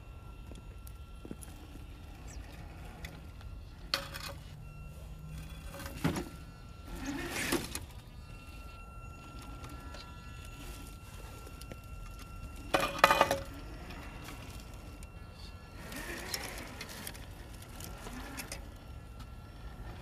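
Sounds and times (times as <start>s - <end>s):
toy truck electric motor whining: 0.0s - 20.0s
knocks and scraping rattle: 1.3s - 4.6s, 5.3s - 15.2s.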